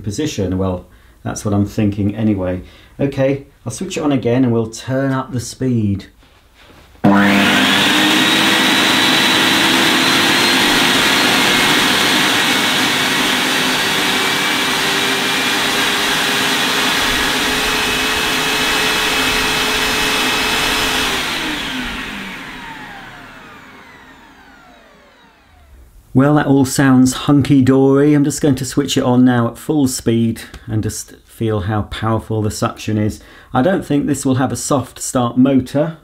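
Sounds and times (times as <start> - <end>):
vacuum cleaner motor whining: 7.0 - 26.0.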